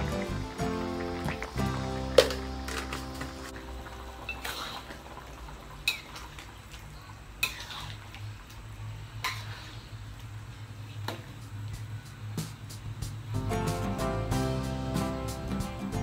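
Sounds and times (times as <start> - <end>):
gravy bubbling: 0.0 - 8.5
spatula scraping wok: 7.4 - 8.0.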